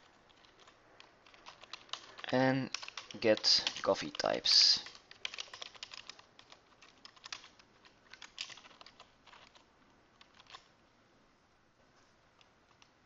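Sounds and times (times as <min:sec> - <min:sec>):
typing on computer keyboard: 0:00.3 - 0:10.7.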